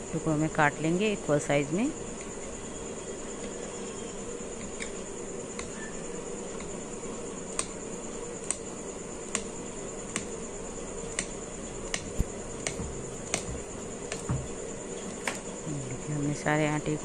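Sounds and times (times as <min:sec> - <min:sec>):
crickets chirring: 0:00.0 - 0:17.0.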